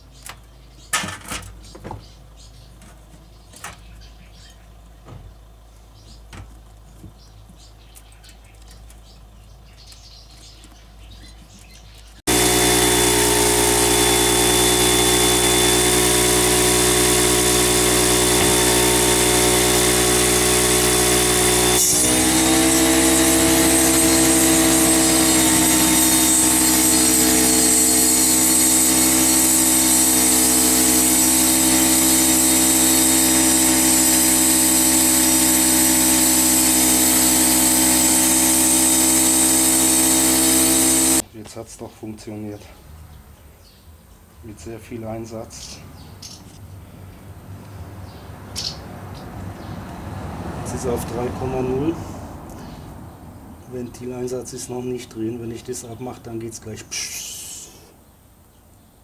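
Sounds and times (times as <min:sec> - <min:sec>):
air compressor running: 0:12.3 - 0:41.2.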